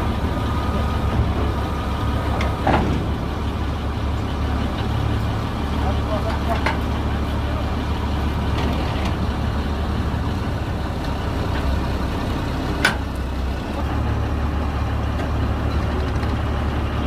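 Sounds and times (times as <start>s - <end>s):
harvester engine humming: 0.0s - 17.0s.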